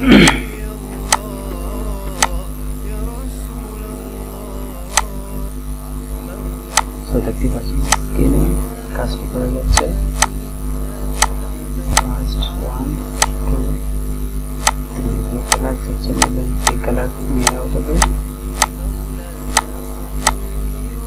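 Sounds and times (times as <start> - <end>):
steady electrical hum: 0.0 - 21.0
computer mouse clicking: 1.1 - 1.3, 4.9 - 5.1, 6.7 - 6.9, 9.7 - 10.4, 11.2 - 12.1, 13.2 - 13.4, 14.6 - 14.8, 15.5 - 16.8, 19.5 - 20.4.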